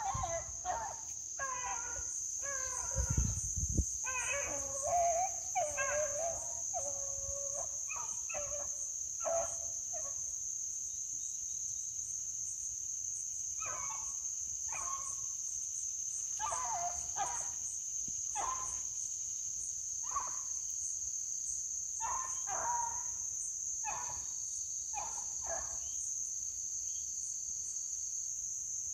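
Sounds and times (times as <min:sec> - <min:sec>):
beagles baying: 0:00.0 - 0:03.3, 0:04.0 - 0:10.1, 0:16.4 - 0:17.6, 0:22.0 - 0:23.1
high drone of insects: 0:00.0 - 0:28.9.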